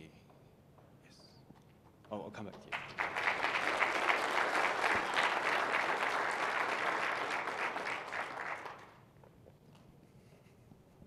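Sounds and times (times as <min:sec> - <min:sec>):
audience applauding: 0:02.7 - 0:09.0.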